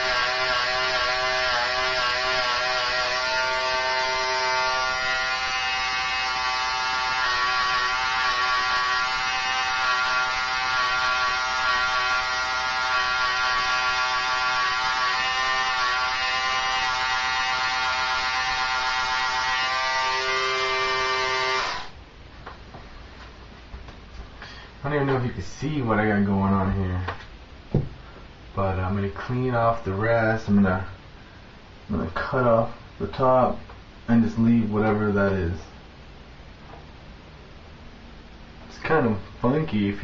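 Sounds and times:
electric hair clippers buzzing: 0.0s - 22.0s.

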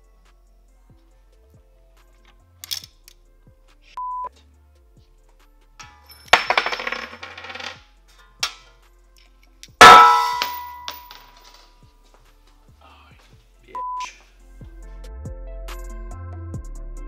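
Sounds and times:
metallic jingle and clatter: 5.8s - 7.8s, 9.8s - 11.7s
loud ringing metallic clang: 9.8s - 11.1s
short steady beep: 13.8s - 14.1s.

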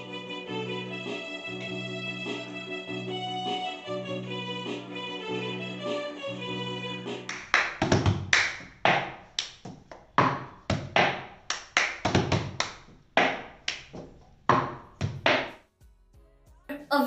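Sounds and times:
hand claps: 7.2s - 15.6s.

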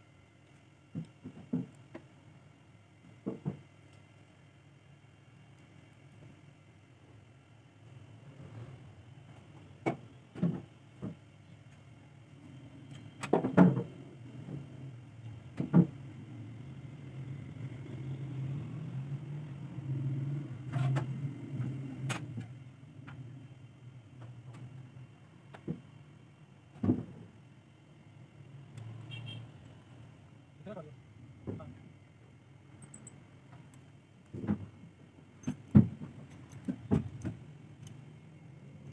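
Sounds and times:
steady low hum: 0.0s - 38.9s
small metal parts clicking: 32.8s - 33.8s.

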